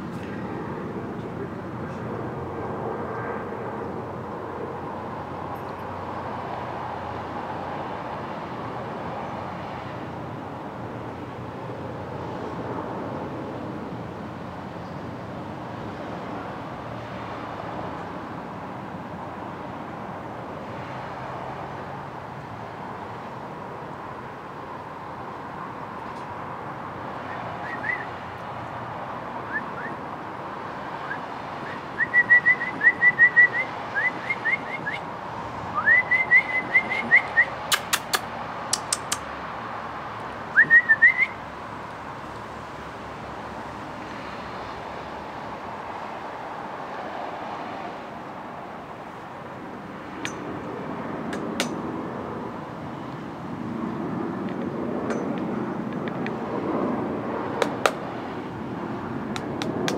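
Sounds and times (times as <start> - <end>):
person whistling rising chirps: 35.8 - 37.5, 40.6 - 41.4
sharp clicks: 37.7 - 39.3.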